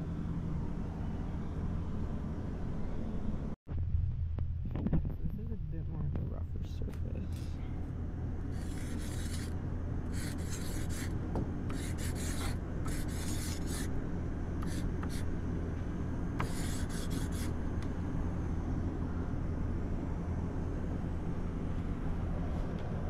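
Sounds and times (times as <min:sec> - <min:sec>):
steady low rumble: 0:00.0 - 0:23.0
marker scraping on wood: 0:08.6 - 0:09.5, 0:10.1 - 0:11.1, 0:11.7 - 0:13.9, 0:14.6 - 0:15.2, 0:16.4 - 0:17.5.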